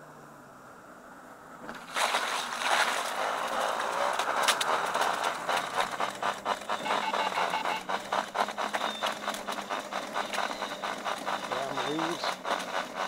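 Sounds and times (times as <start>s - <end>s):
unicycle wheel clattering clicks: 3.2s - 13.0s.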